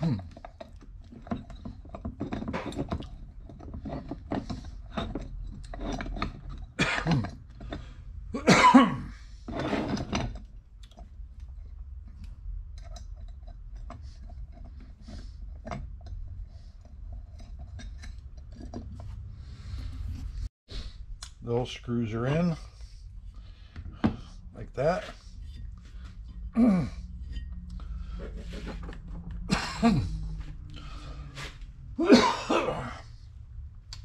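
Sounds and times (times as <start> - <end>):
man coughing: 6.8 - 7.3, 8.4 - 9.2, 26.6 - 27.0, 29.5 - 30.4, 32.0 - 33.2.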